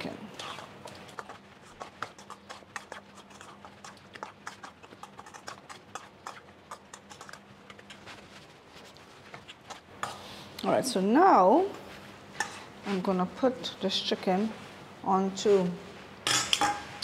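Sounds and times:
spoon clinking on metal bowl: 16.3s - 16.9s.

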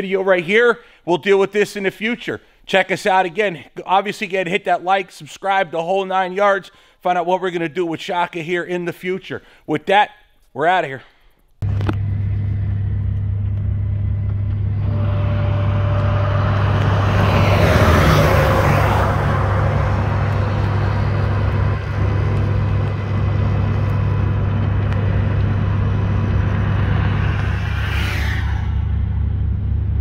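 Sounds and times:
large vehicle engine rumbling: 11.6s - 30.0s.

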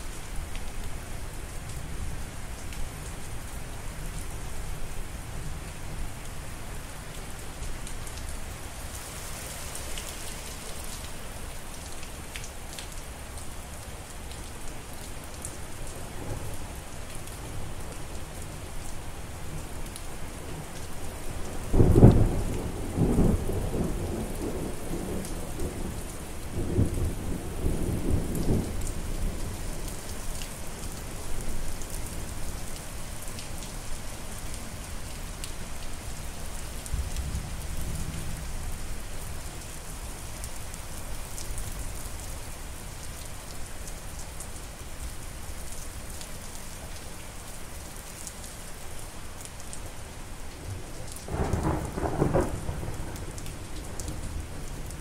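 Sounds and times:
steady rain falling: 0.0s - 55.0s
thunderclap rumbling: 51.3s - 53.3s.

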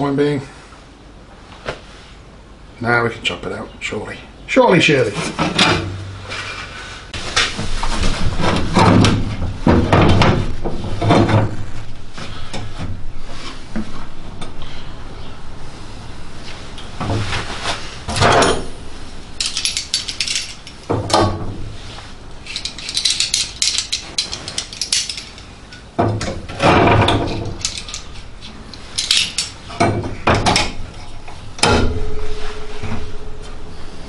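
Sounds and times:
metallic clinks and clatters: 19.4s - 20.9s, 22.4s - 25.9s, 27.1s - 29.9s.

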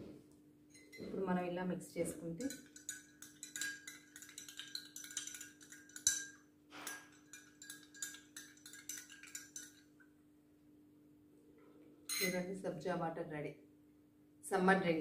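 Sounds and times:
spoon clinking against glass mug: 0.7s - 1.2s, 2.4s - 9.8s, 12.1s - 12.5s.

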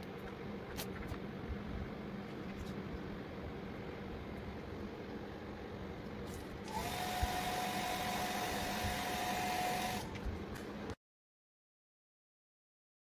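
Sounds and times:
handheld vacuum cleaner running: 6.7s - 10.1s.

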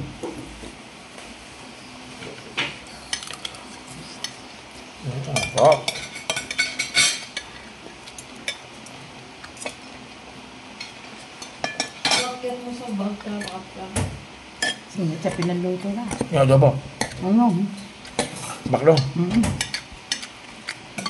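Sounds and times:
cutlery clinking on ceramic plate: 5.3s - 7.5s.

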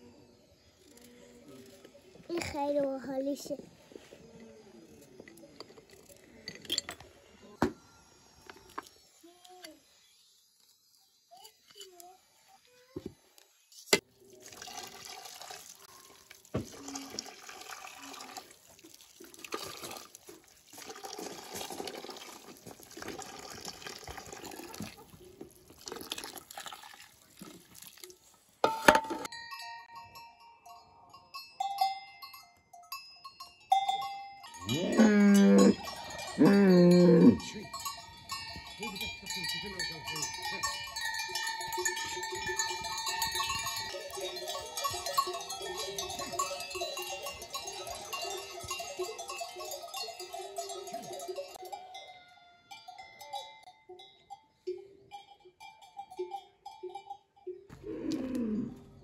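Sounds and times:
cowbells clanking: 28.6s - 58.7s
cattle calling: 34.6s - 49.3s.

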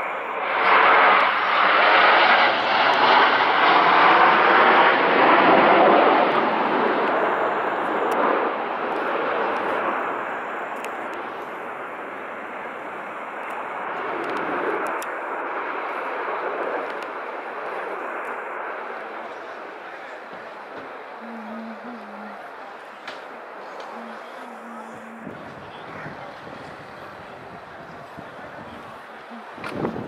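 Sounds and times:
jets flying overhead: 0.0s - 30.0s.

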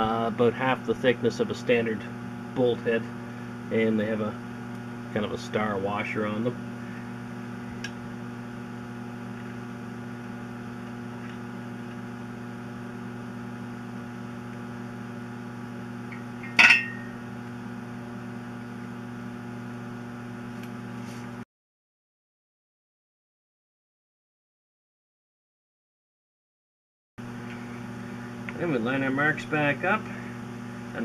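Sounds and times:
steady low hum: 0.0s - 21.4s, 27.2s - 31.0s
sharp metallic clink: 16.4s - 17.1s.

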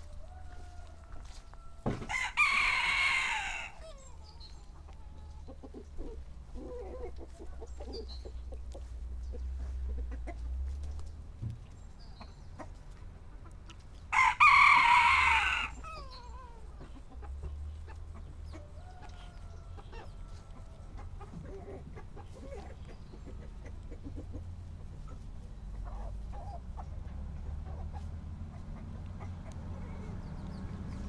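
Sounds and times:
rooster crowing: 0.0s - 4.1s, 14.1s - 16.6s, 18.7s - 20.9s
chickens clucking: 0.0s - 31.0s.

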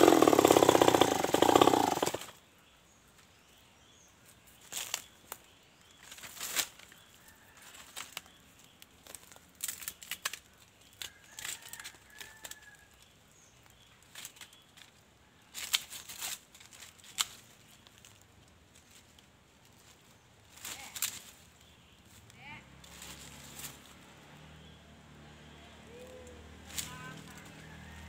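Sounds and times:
leaves and twigs rustling: 3.1s - 24.2s, 25.8s - 28.0s
branch snapping: 9.0s - 12.6s, 15.6s - 18.2s, 20.6s - 21.4s, 26.0s - 27.5s.

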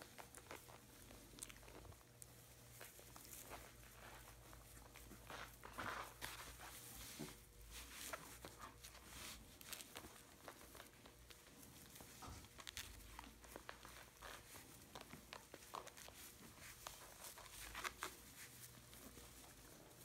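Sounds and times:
puppy scratching and pattering: 0.0s - 20.0s.

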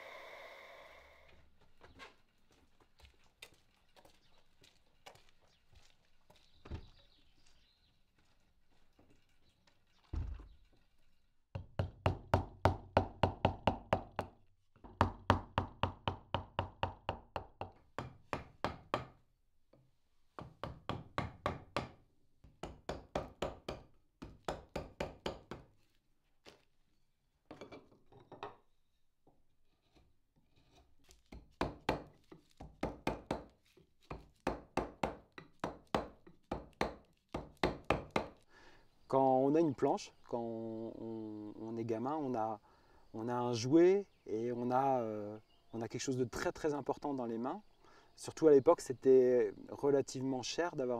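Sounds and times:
mallet tapping a gouge into wood: 34.1s - 38.4s.

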